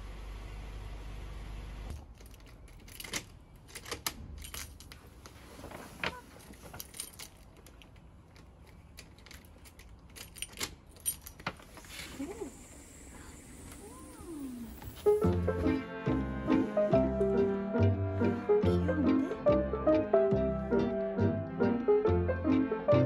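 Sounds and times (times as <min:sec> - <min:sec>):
key scraping in lock: 0:01.9 - 0:05.0, 0:06.5 - 0:11.6
keys jangling: 0:01.9 - 0:05.0, 0:06.4 - 0:11.6.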